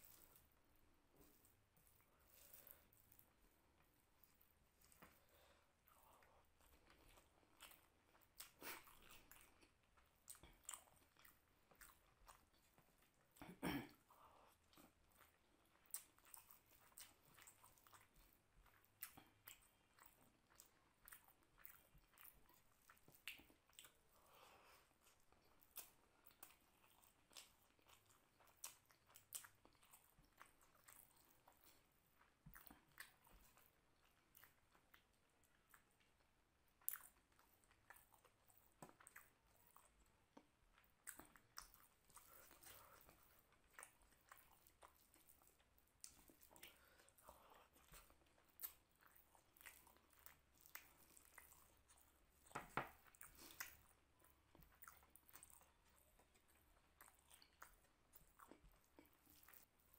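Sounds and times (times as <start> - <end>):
chewing and wet mouth smacks: 0.0 - 59.9.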